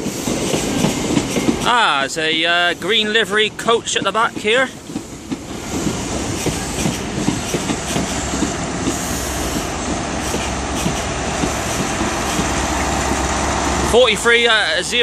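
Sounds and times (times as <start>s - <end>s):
train coaches rolling past: 0.0s - 15.0s
wheels clicking over rail joints: 0.0s - 15.0s
low diesel hum: 8.2s - 15.0s.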